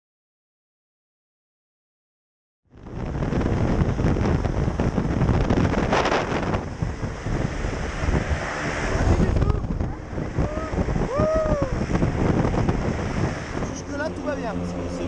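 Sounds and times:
plane engine running: 2.7 - 15.0
wind buffeting microphone: 2.7 - 15.0.

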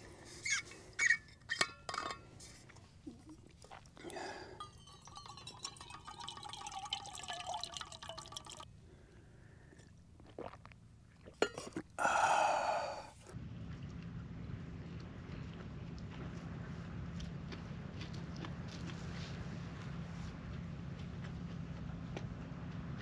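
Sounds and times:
light clinks: 4.6 - 7.6
water pouring into a metal mug: 4.6 - 8.7.

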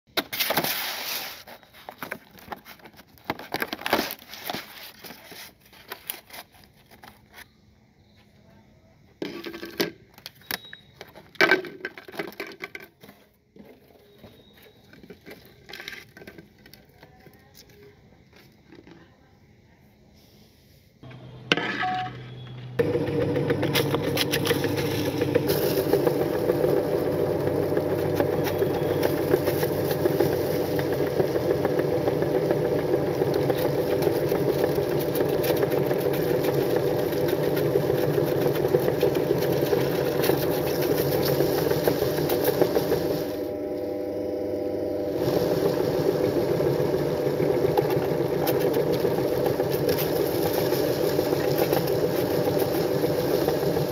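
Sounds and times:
cookies crackling in grinder: 22.5 - 53.9
meat grinder running: 22.6 - 53.9.

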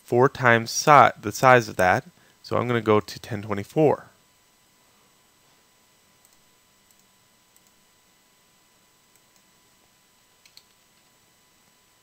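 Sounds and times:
background hiss: 0.0 - 12.0
computer mouse clicks: 6.2 - 7.8, 9.1 - 9.5, 10.4 - 11.1.

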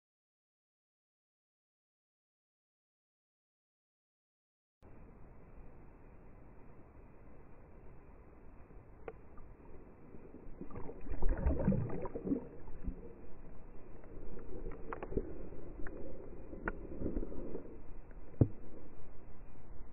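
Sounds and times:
muffled underwater churning: 8.8 - 19.9.

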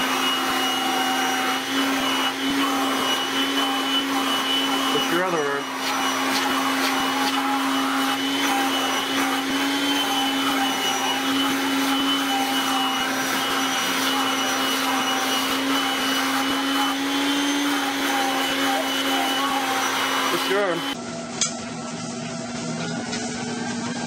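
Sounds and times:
vacuum cleaner running: 0.0 - 24.0.

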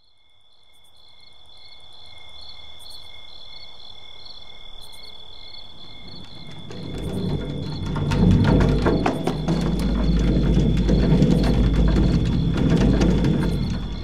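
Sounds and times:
crickets chirping: 0.0 - 14.0
low rumble: 6.0 - 14.0.

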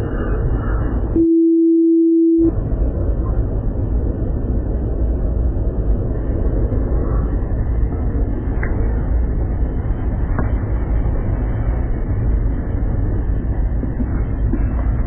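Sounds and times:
airliner engine rumble: 0.0 - 15.0
steady beep: 1.2 - 2.5.

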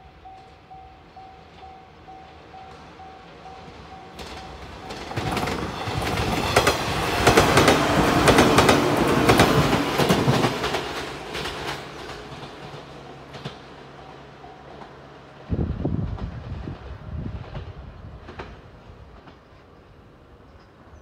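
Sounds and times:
level crossing warning bell: 0.0 - 6.6
electric train passing: 0.0 - 21.0
train wheels clacking on rail joints: 2.6 - 15.0, 15.7 - 19.9.

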